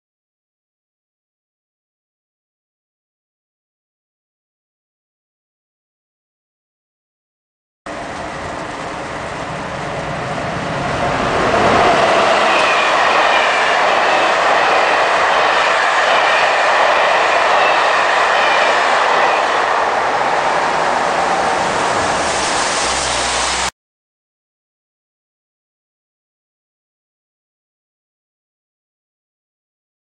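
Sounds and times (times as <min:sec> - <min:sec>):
train wheels rushing on rails: 0:07.9 - 0:23.7.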